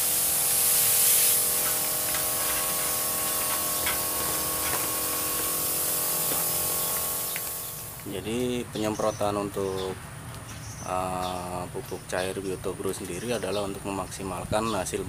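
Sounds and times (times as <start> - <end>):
sprayer nozzle hissing: 0.0 - 8.2
steady hum: 0.0 - 8.4.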